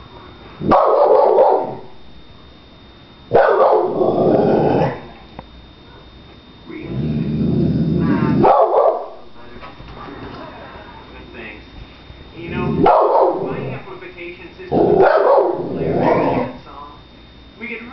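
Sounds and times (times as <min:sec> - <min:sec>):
dog barking: 0:00.6 - 0:01.9, 0:03.3 - 0:04.2, 0:05.8 - 0:06.1, 0:08.4 - 0:09.2, 0:12.7 - 0:13.8, 0:14.8 - 0:16.6
dog growling: 0:03.5 - 0:05.3, 0:06.7 - 0:09.3, 0:12.4 - 0:13.9, 0:14.7 - 0:16.6.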